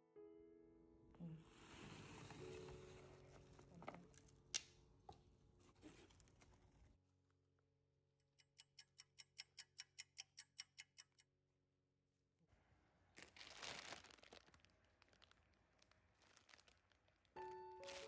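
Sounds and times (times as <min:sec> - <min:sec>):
clock ticking: 0:08.4 - 0:11.2
plastic bag crinkling: 0:13.2 - 0:18.0.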